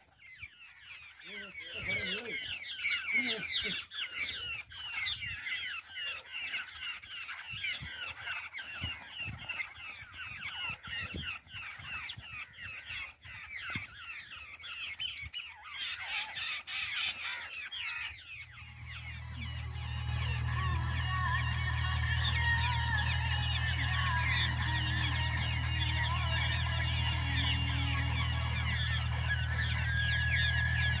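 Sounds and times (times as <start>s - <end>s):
babblers chattering: 1.0s - 31.0s
low steady hum: 18.3s - 31.0s.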